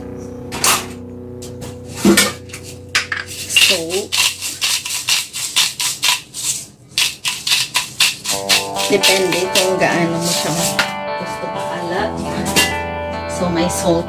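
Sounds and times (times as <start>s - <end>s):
salt shaker rattling: 2.6s - 10.8s.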